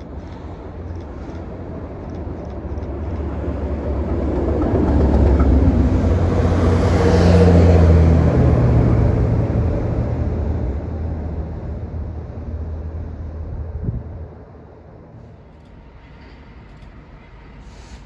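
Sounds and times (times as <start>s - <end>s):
diesel locomotive engine drone: 0.0s - 18.0s
train rail noise: 0.0s - 18.0s.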